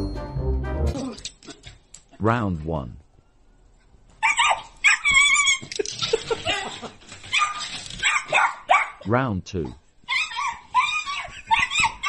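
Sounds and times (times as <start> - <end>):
puppy yipping and whining: 4.2 - 5.8, 7.2 - 9.0, 10.1 - 12.0.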